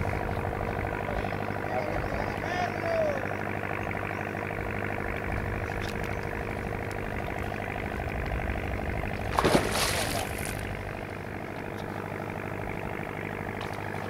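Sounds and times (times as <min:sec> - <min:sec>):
boat motor idling: 0:00.0 - 0:14.0.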